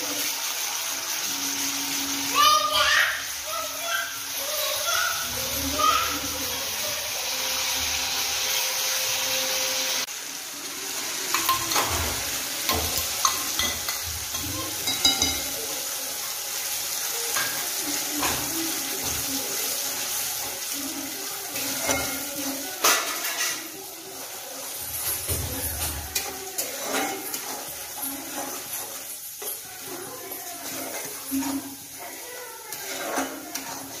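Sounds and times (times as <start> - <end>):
paste sizzling in oil: 0.0 - 34.0
metal spatula scraping pan: 24.7 - 34.0.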